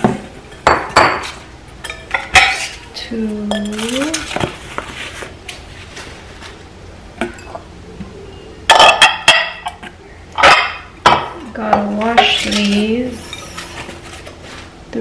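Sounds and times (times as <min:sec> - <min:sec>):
glass bowls clinking: 0:00.5 - 0:02.9, 0:03.5 - 0:04.3, 0:07.2 - 0:07.7, 0:08.7 - 0:13.9
paper packing wrap rustling: 0:03.8 - 0:06.6.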